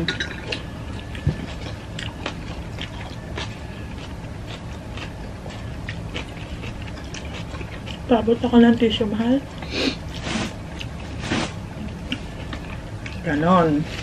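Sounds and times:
chewing and wet mouth smacks: 0.5 - 8.0.

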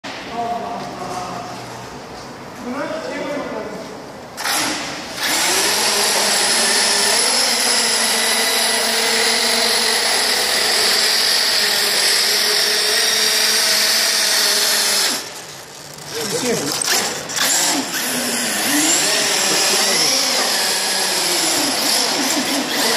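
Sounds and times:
small wheels rolling on concrete: 9.0 - 22.9
electric motor whining under load: 16.2 - 22.9.

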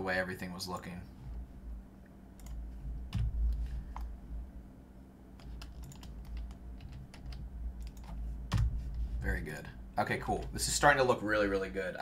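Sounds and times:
low steady hum: 0.0 - 12.0
computer keyboard keystrokes: 5.4 - 8.7.

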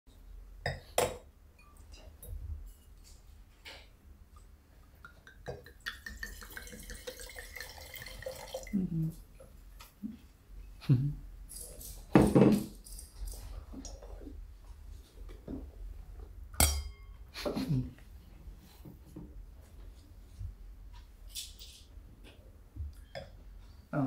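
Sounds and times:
wine pouring into a glass: 5.6 - 8.8
glass and tableware clinking: 16.6 - 17.2.

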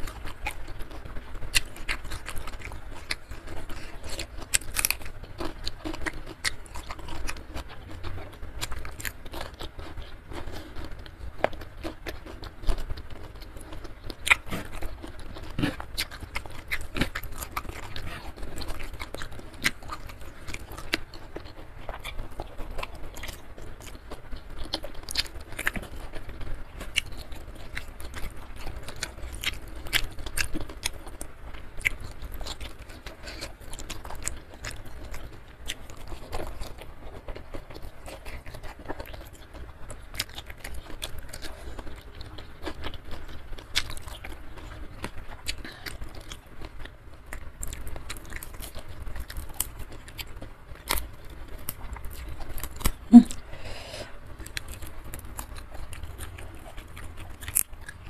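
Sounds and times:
chewing and crunching: 0.0 - 58.0
wet mouth clicks: 53.0 - 53.4.

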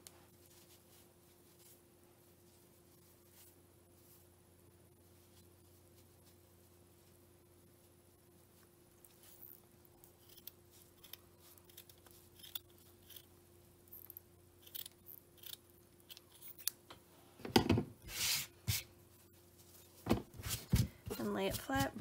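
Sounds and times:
scissors snipping yarn: 10.0 - 13.3, 14.6 - 16.8.

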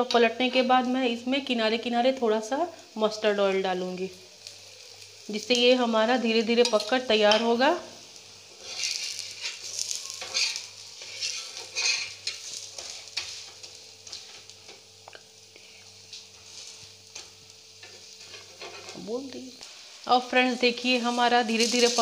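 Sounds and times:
slices sizzling in oil: 0.0 - 22.0
spatula scraping a pan: 8.5 - 14.5, 16.4 - 19.0.

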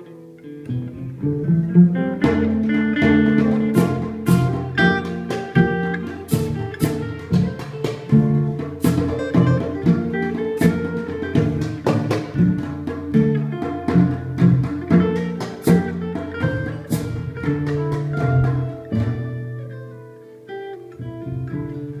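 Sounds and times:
acoustic guitar: 0.0 - 22.0
cello playing low line: 0.0 - 22.0
hand drums struck with sticks: 2.1 - 19.4.

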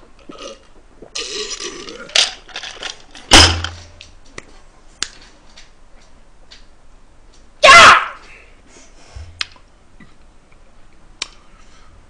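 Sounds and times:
man gulping a drink: 0.0 - 2.2.

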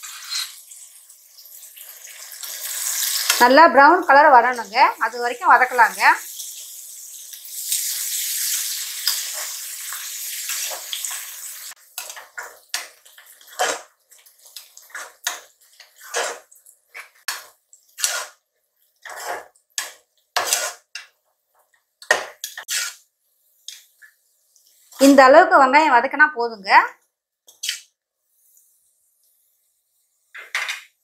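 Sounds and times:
metal spatula scraping pot: 0.0 - 0.6, 7.7 - 21.2, 22.0 - 24.1, 27.5 - 28.0
onions sizzling in oil: 0.0 - 25.9, 27.5 - 30.4.

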